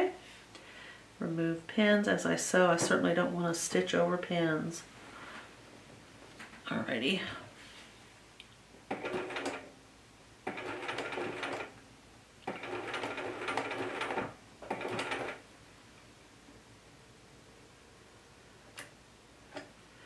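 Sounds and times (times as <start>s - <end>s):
sewing machine stitching: 8.9s - 9.7s, 10.4s - 11.7s, 12.4s - 15.4s.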